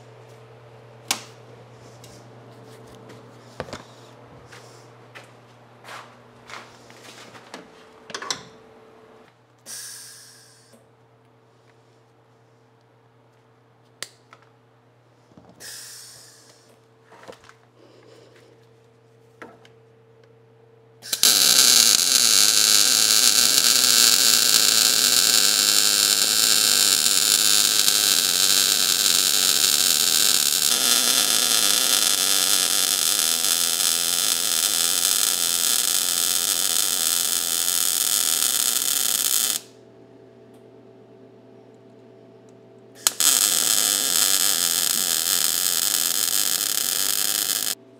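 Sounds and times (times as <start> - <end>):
welder buzzing: 21.0 - 39.8, 43.0 - 47.8.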